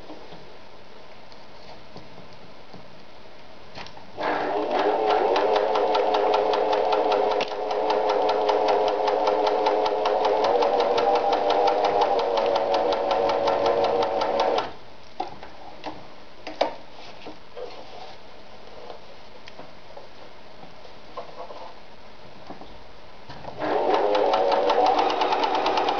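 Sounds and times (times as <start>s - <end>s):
sewing machine stitching: 4.2s - 14.8s, 23.5s - 25.9s.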